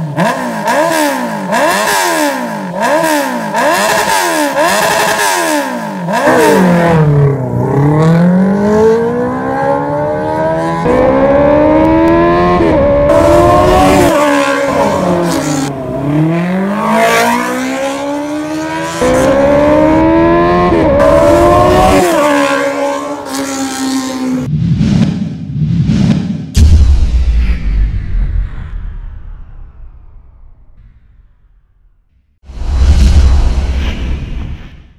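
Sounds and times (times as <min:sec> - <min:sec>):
motorcycle engine revving: 0:00.0 - 0:24.5.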